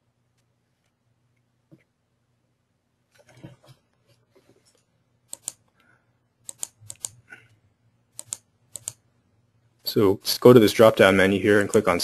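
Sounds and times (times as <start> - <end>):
faint low hum: 0.0 - 12.0
computer mouse clicks: 5.3 - 7.3, 8.1 - 9.0, 11.6 - 12.0.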